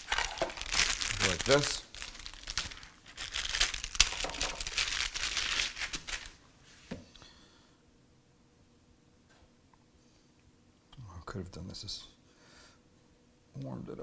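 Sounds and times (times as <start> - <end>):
plastic wrapper crinkling and tearing: 0.0 - 6.4.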